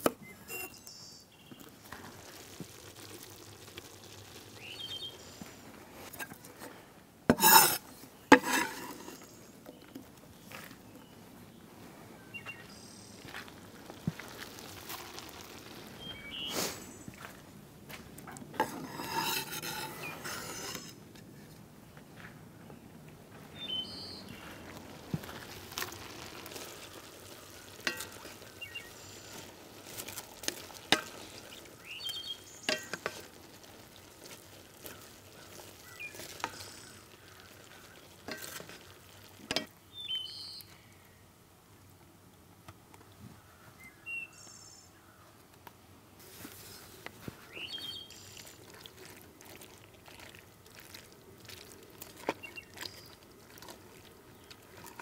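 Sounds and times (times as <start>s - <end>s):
spoon stirring chili: 0.2s - 10.2s, 13.4s - 17.2s, 18.1s - 21.3s, 23.5s - 40.3s, 46.2s - 55.0s.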